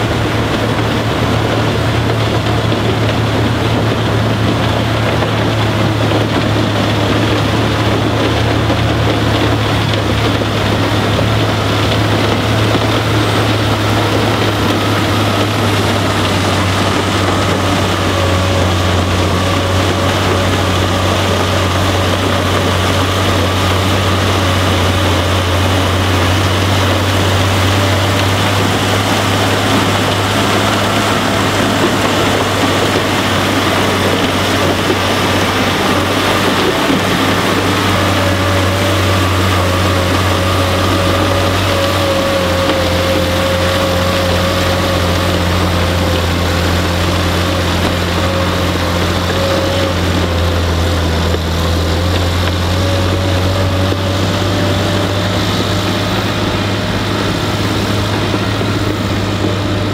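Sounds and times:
heavy machine drone: 0:00.0 - 0:59.9
snowblower rushing: 0:00.0 - 0:59.9.

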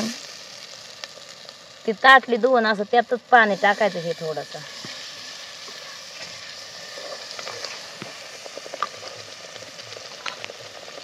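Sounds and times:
small pops and ticks: 0:00.0 - 0:02.2, 0:05.6 - 0:11.0
paste sizzling in hot oil: 0:00.0 - 0:11.0.

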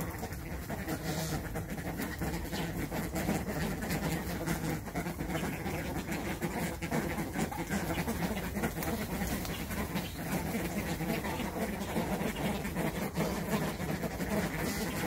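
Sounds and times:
birds grunting calls: 0:00.0 - 0:15.0.

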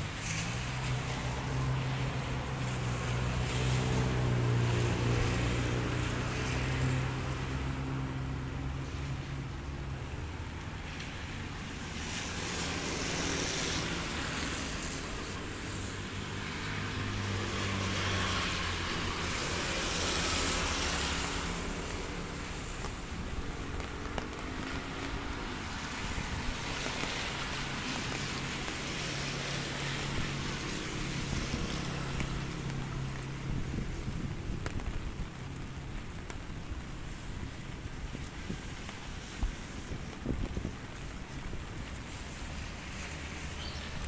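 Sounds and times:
hiss: 0:36.8 - 0:44.0.

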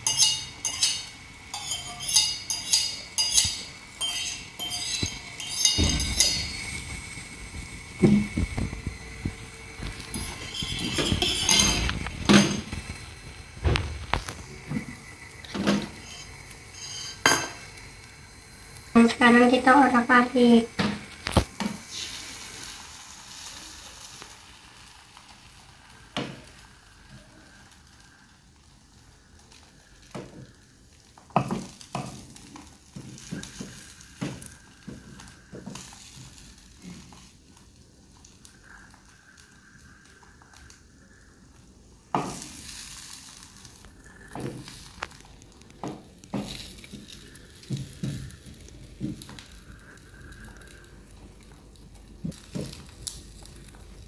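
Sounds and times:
utensil scraping and knocking pan: 0:00.0 - 0:06.9, 0:09.8 - 0:12.8
eggs sizzling in a pan: 0:00.0 - 0:54.0.

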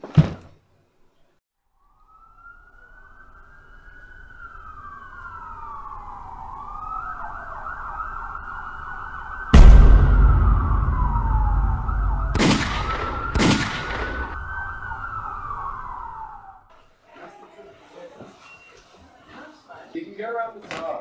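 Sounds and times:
police siren wailing and yelping: 0:02.1 - 0:09.5, 0:13.1 - 0:16.6
loud deep hit: 0:09.6 - 0:15.7.

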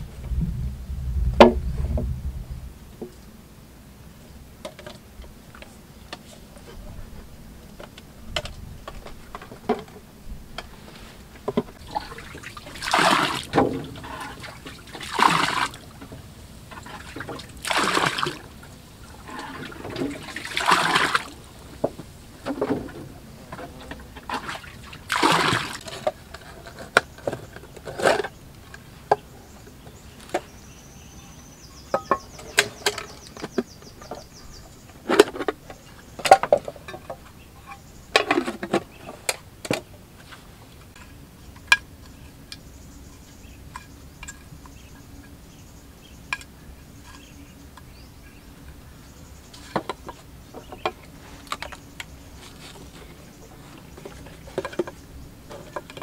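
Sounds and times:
water splashes: 0:11.8 - 0:22.9, 0:23.8 - 0:26.1.

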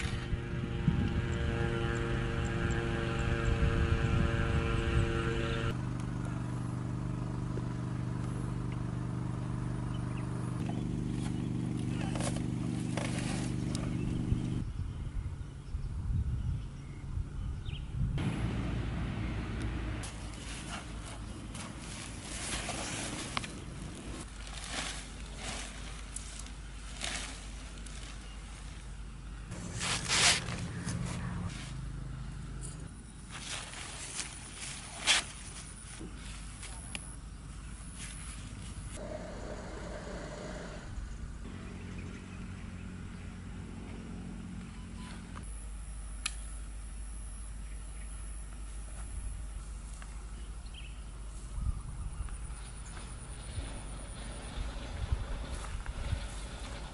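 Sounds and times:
wind rumble on microphone: 0:00.0 - 0:05.7, 0:13.7 - 0:18.5, 0:51.4 - 0:56.9
engine humming: 0:00.0 - 0:14.7, 0:17.5 - 0:56.9
fabric backpack rustling: 0:20.1 - 0:28.8.

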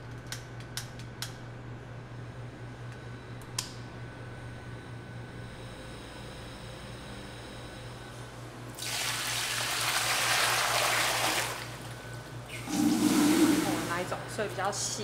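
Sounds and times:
steady low hum: 0:11.5 - 0:15.0.

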